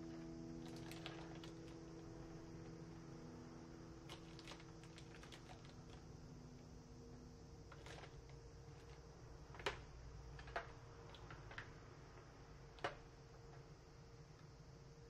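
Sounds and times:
faint steady hum: 0.0s - 15.0s
packages clicking and tapping: 0.6s - 1.8s, 4.1s - 6.0s, 7.7s - 13.7s.

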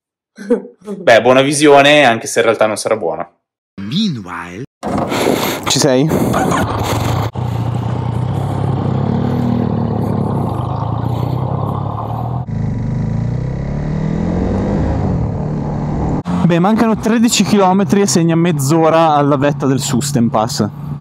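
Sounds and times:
motorcycle engine accelerating: 6.4s - 17.0s.

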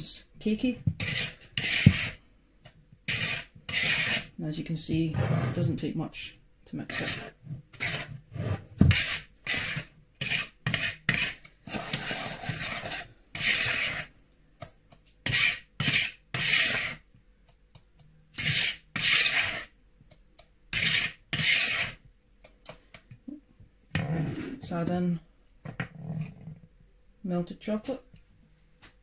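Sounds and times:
whisk scraping through batter: 1.0s - 2.2s, 3.1s - 4.3s, 6.8s - 14.1s, 15.2s - 17.1s, 18.3s - 19.8s, 20.7s - 22.0s.

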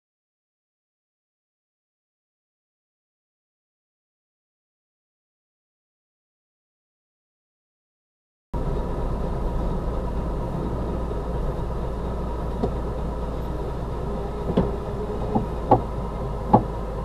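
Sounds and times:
car engine and cabin drone: 8.6s - 17.0s.

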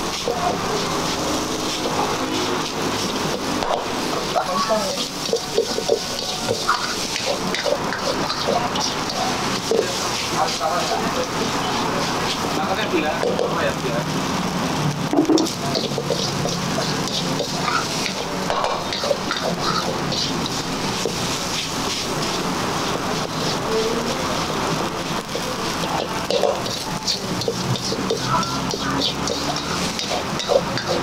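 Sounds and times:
rice sizzling in a wok: 0.0s - 31.0s
metal spatula scraping a wok: 0.1s - 12.4s, 15.4s - 31.0s.

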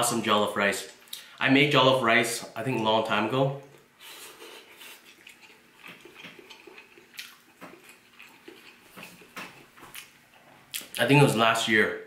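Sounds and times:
person chewing: 3.8s - 11.0s.

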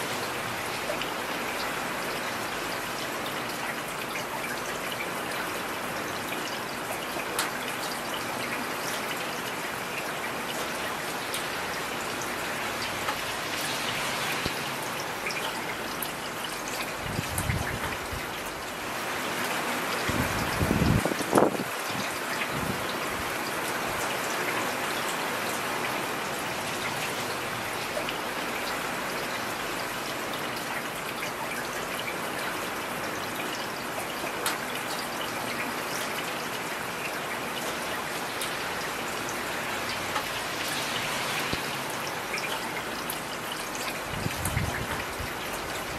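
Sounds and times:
heavy rain hissing: 11.4s - 16.1s, 38.2s - 45.9s.

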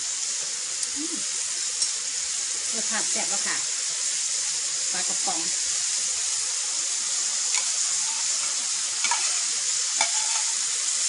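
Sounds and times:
vegetables sizzling in a wok: 0.0s - 11.0s.

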